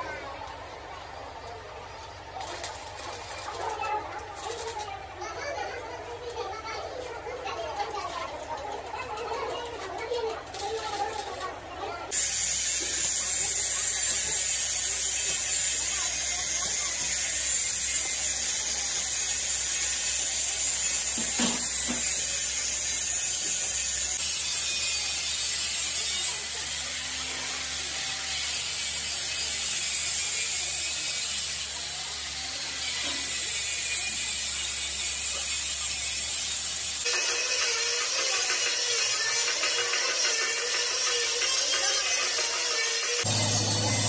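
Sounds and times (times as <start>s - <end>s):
arc welding hiss: 12.1s - 26.6s, 32.9s - 44.0s.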